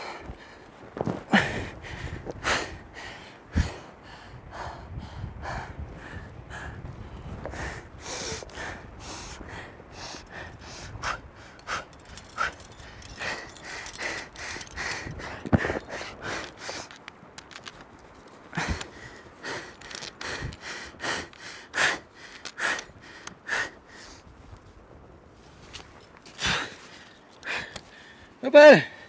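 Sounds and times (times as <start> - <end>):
person breathing hard: 0.0 - 0.6, 1.3 - 17.0, 18.5 - 24.2, 26.4 - 29.0.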